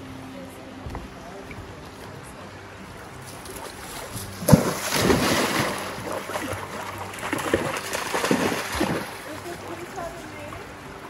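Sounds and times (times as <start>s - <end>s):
rushing stream water: 2.1s - 11.0s
dog splashing in stream: 3.2s - 10.6s.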